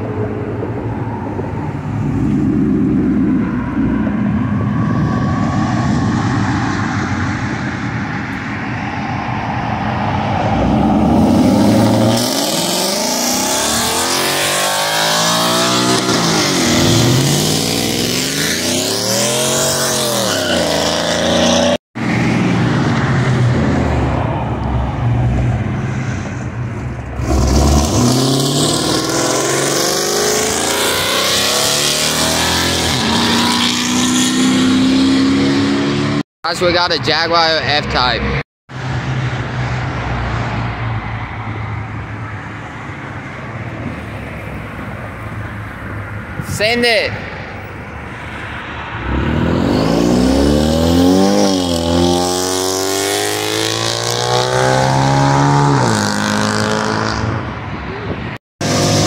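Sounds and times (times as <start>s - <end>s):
car engine revving past: 48.1s - 57.5s.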